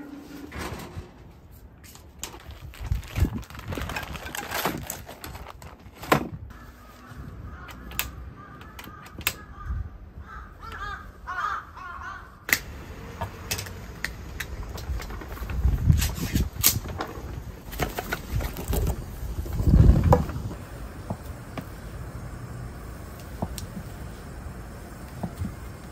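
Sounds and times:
crows cawing: 0:06.5 - 0:12.5
stove igniter clicking: 0:12.5 - 0:15.1, 0:21.0 - 0:25.9.

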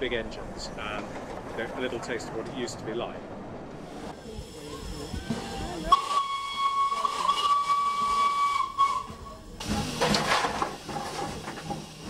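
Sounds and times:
steam hissing: 0:03.9 - 0:12.0
steam whistle: 0:05.9 - 0:09.3.

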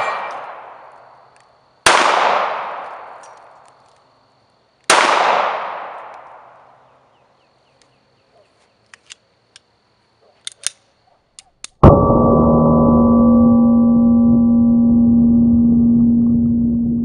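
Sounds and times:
pistol shot echo: 0:00.0 - 0:01.0, 0:01.8 - 0:03.6, 0:04.9 - 0:06.6
pistol handling clicks: 0:02.8 - 0:04.1, 0:05.9 - 0:06.4, 0:08.8 - 0:09.7, 0:10.4 - 0:11.8
loud gong-like tone: 0:11.8 - 0:17.0.

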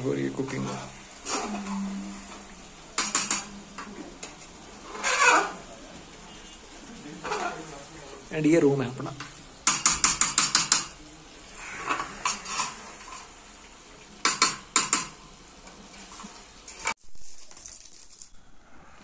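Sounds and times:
metal spoon clinking on pan: 0:09.2 - 0:11.0.

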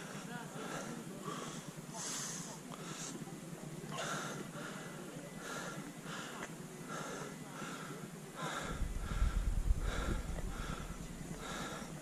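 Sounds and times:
quick heavy breathing: 0:00.0 - 0:12.0
wind buffeting microphone: 0:08.6 - 0:12.0.

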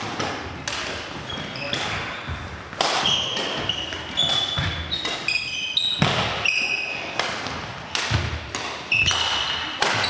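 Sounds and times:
rackets hitting shuttlecock: 0:00.0 - 0:10.0
shoes squeaking on floor: 0:01.2 - 0:07.2, 0:08.9 - 0:10.0.

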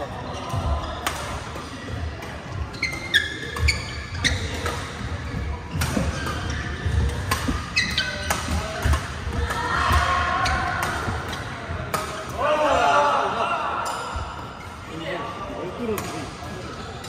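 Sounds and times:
shoes squeaking on court floor: 0:00.0 - 0:09.5
rackets hitting shuttlecocks: 0:05.7 - 0:12.4.

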